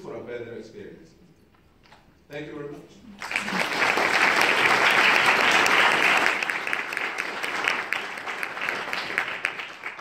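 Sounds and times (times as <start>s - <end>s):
audience clapping: 3.1s - 10.0s.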